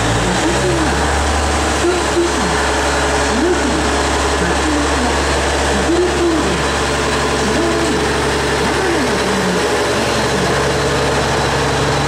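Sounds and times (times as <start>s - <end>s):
diesel engine idling hum: 0.0s - 12.0s.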